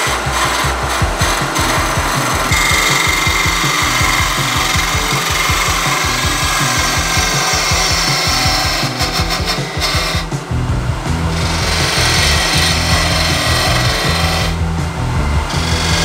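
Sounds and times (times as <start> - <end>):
turning tool scraping wood: 0.0 - 10.3, 11.4 - 14.6
wood lathe spinning: 0.0 - 10.4, 11.3 - 14.7, 15.5 - 16.0.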